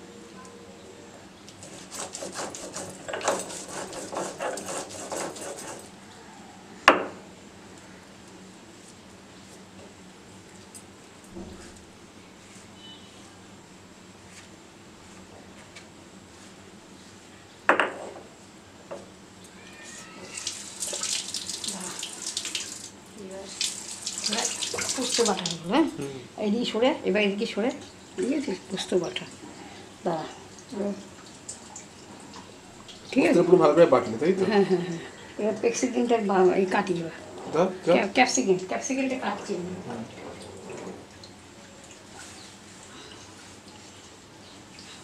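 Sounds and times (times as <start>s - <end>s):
stone roller scraping on slab: 1.6s - 5.9s.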